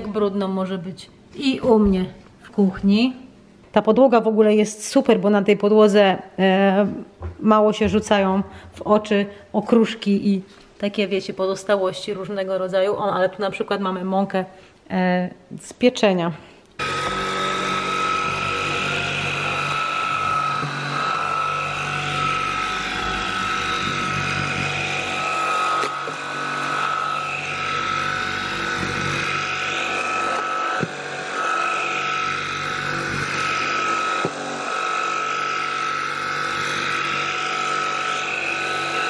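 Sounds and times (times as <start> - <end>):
vacuum cleaner motor whining: 16.8 - 39.0.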